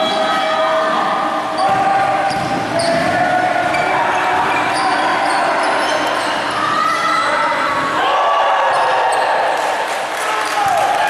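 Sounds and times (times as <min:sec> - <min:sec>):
players' voices echoing: 0:00.0 - 0:11.0
basketball bouncing: 0:01.6 - 0:03.9
sneakers squeaking on hardwood: 0:01.6 - 0:07.3.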